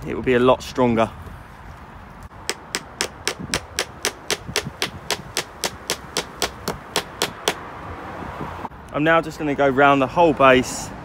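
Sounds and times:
hammer striking a nail: 0:02.4 - 0:07.6.

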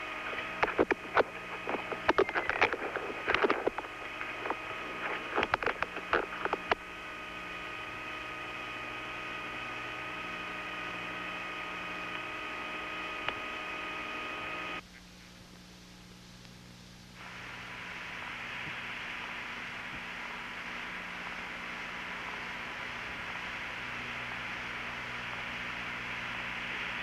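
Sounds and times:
electrical hum and hiss: 0:00.0 - 0:27.0
clicks: 0:00.2 - 0:06.8, 0:13.2 - 0:13.5.

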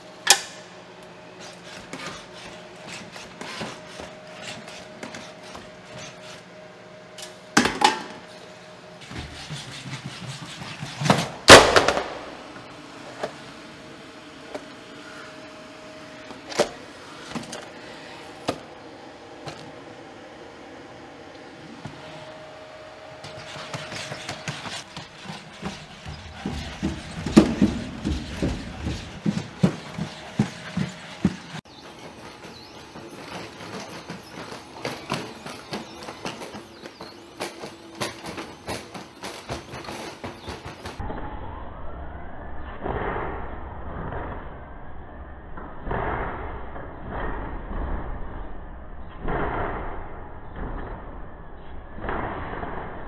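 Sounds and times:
robot feet clacking on wood: 0:23.3 - 0:41.0.

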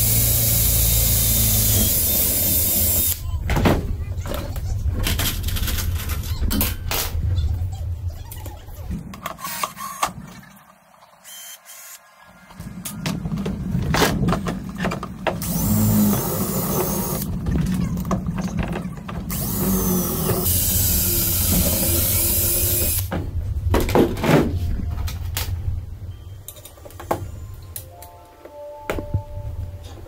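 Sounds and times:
cordless drill boring into metal: 0:00.0 - 0:03.2, 0:15.4 - 0:17.3, 0:19.3 - 0:23.1.

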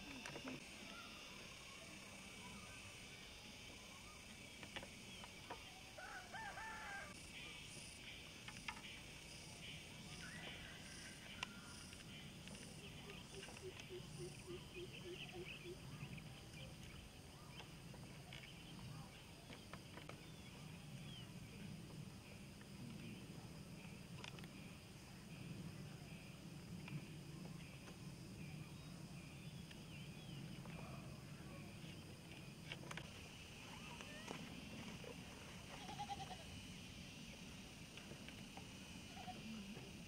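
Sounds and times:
steady high hiss: 0:00.0 - 0:40.0
rooster crowing: 0:06.0 - 0:07.2.

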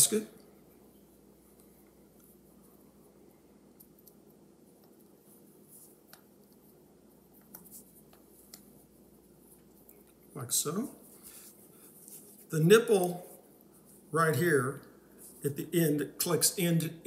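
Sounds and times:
faint ticks and rubbing: 0:03.8 - 0:10.4, 0:11.0 - 0:14.2.

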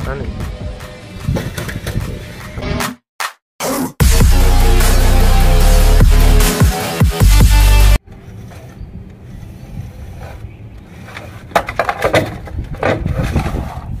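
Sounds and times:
electronic dance music: 0:04.0 - 0:08.0
wooden plank knocking and scraping: 0:11.2 - 0:13.9.

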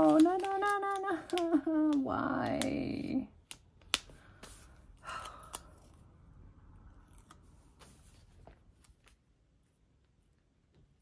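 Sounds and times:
tape rustling: 0:00.0 - 0:02.8.

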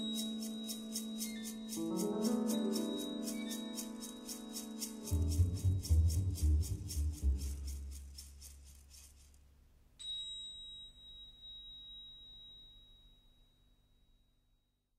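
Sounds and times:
high bell-like note ringing: 0:10.0 - 0:14.4.

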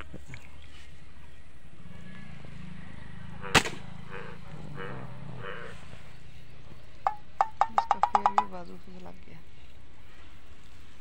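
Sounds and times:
slingshot snap: 0:03.6 - 0:03.8.

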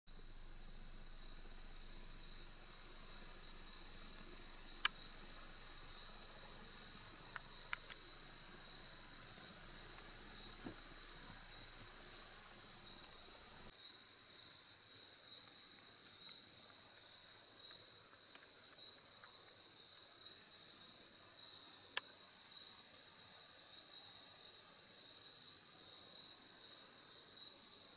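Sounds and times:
insect chorus trilling: 0:00.1 - 0:27.9
sharp clicks: 0:04.8 - 0:05.1, 0:07.2 - 0:08.1.

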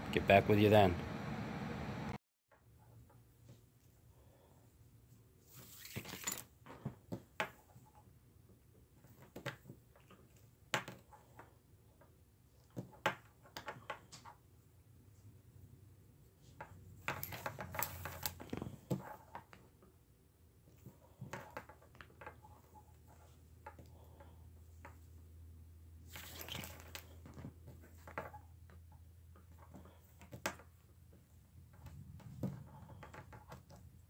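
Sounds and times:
cord rustling and sliding: 0:05.4 - 0:08.0, 0:16.3 - 0:19.7, 0:26.0 - 0:28.5.

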